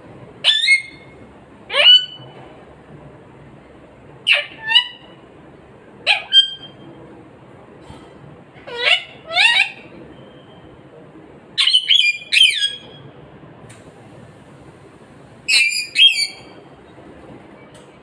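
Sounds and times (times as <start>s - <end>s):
parakeet calling falling notes: 15.5s - 16.5s.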